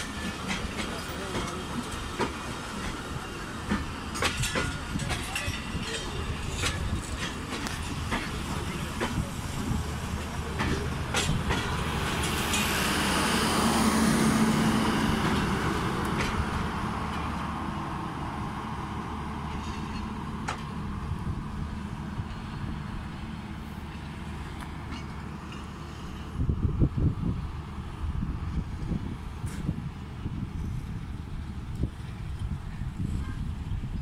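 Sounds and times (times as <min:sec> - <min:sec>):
sharp rail clacks: 0:00.0 - 0:13.7
train coaches rolling on rails: 0:00.0 - 0:34.0.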